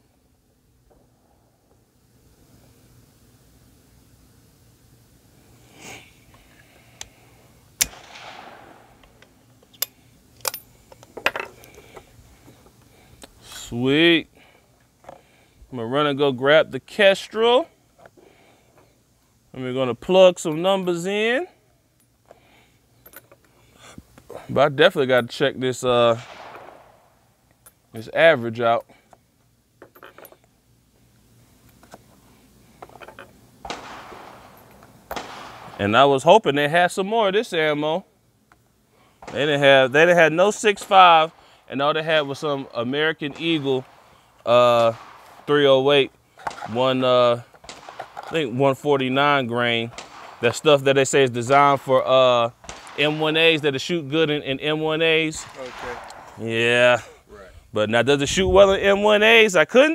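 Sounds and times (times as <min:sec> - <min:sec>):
low steady hiss: 0:00.0 - 0:59.9
short hiss: 0:05.4 - 0:13.8
rifle bolt metallic clicks: 0:07.8 - 0:08.4.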